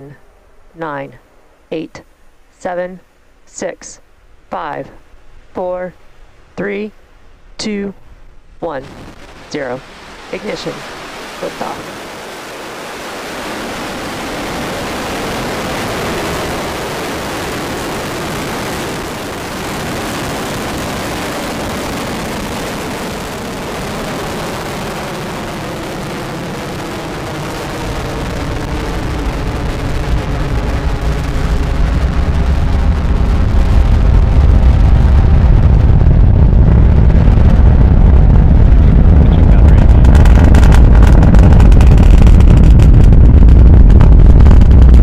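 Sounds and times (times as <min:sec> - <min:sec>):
steady hiss: 0:00.0 - 0:22.6
distant rocket engine rumble: 0:00.0 - 0:45.0.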